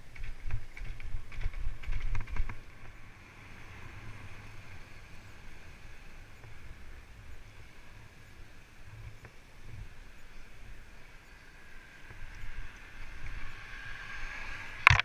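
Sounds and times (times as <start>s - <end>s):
bike rattling over bumps: 0.0s - 3.2s
bike tyres humming on tarmac: 0.0s - 15.0s.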